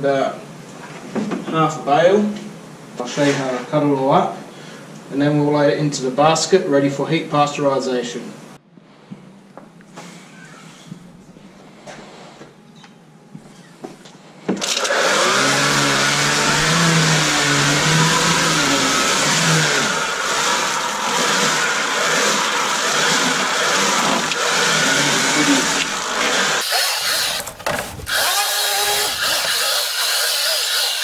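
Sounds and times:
string trimmer chopping straw: 14.6 - 31.0.

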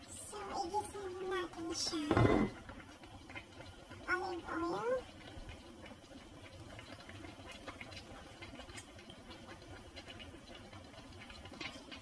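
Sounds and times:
pot of water boiling: 0.0 - 12.0
small clicks and ticks: 6.4 - 12.0.

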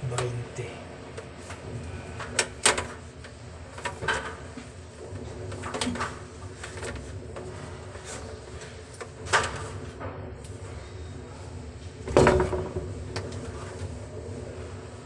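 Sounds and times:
low steady hum: 0.0 - 15.0
plastic pipes knocking: 12.1 - 13.4.

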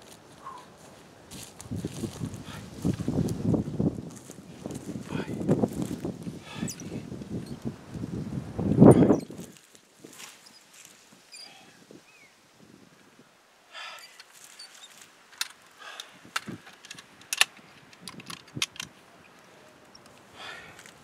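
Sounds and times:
rifle handling metallic clicks: 15.3 - 20.3.

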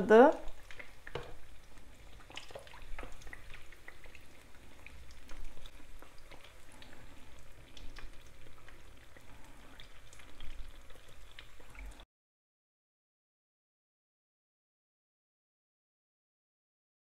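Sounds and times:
dough sizzling in hot oil: 0.0 - 12.0.

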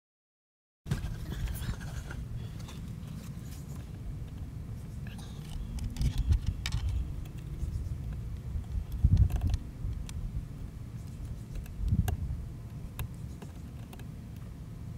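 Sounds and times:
clicks and rustles of handling wires: 0.9 - 10.2, 11.0 - 14.5
steady low rumble: 0.9 - 14.9.

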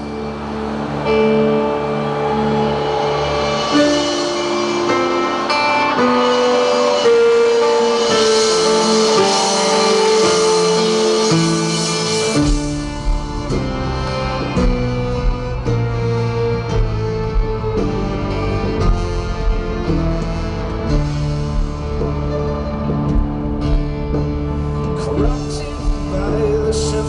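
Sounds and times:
electric guitar: 0.0 - 27.0
keyboard sustained notes: 0.0 - 27.0
bass and drums: 11.3 - 27.0.

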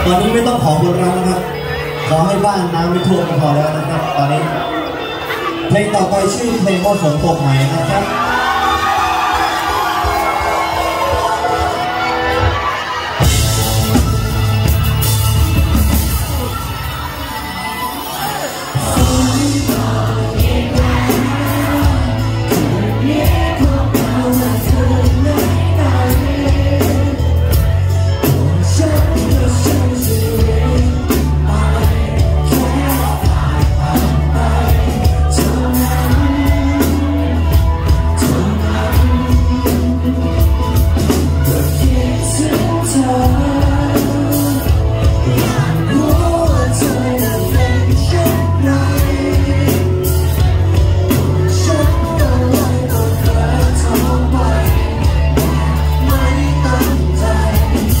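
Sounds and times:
live pop-rock band: 0.0 - 58.0
man singing: 18.6 - 58.0.

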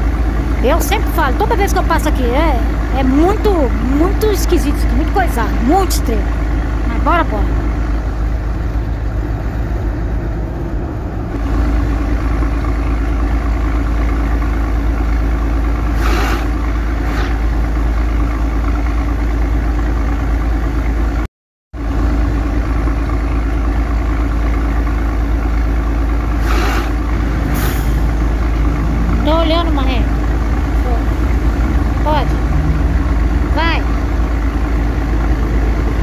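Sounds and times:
diesel truck engine running: 0.0 - 36.0
short air hisses: 16.0 - 16.5, 26.4 - 27.0.

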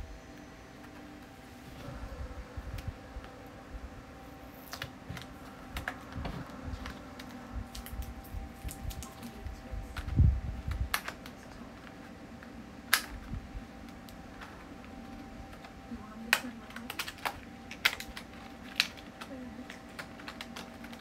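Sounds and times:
faint steady hum: 0.0 - 21.0
packaging clicks and taps: 13.8 - 21.0.

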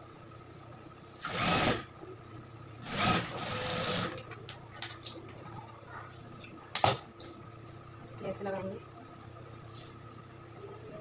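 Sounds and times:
sewing machine running: 1.2 - 1.9, 2.8 - 4.2.

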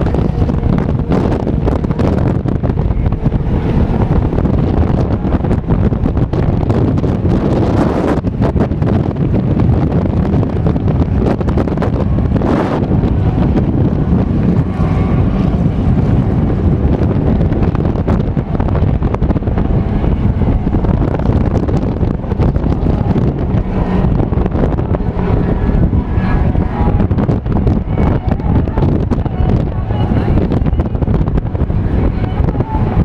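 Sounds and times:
race car engines: 0.0 - 33.0
wind buffeting microphone: 0.0 - 33.0.

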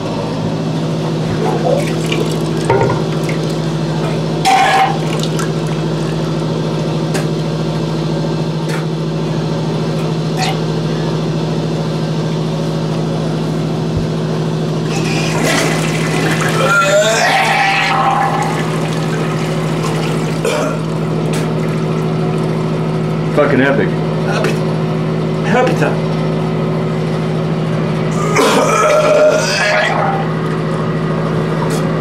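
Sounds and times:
steady hum: 0.0 - 32.0
man retching and vomiting: 4.4 - 5.4, 14.9 - 21.0, 28.1 - 30.3
liquid splashing into water: 5.0 - 6.2, 18.4 - 22.8.

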